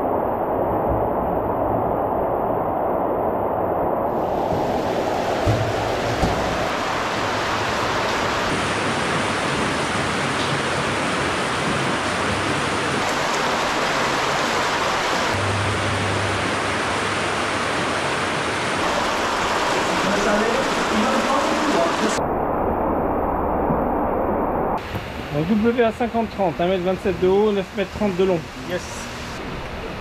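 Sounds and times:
water rushing down channel: 4.1 - 22.2.

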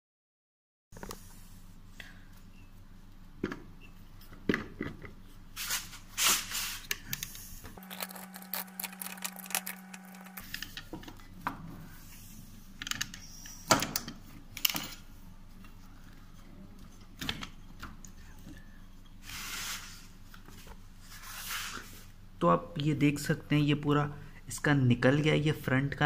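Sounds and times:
steady hum: 7.8 - 10.6.

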